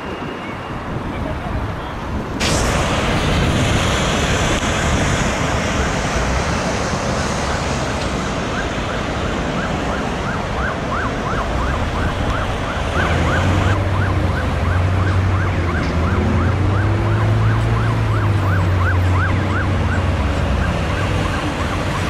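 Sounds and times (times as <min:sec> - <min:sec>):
road traffic noise: 0:00.0 - 0:22.0
emergency siren yelping: 0:07.4 - 0:22.0.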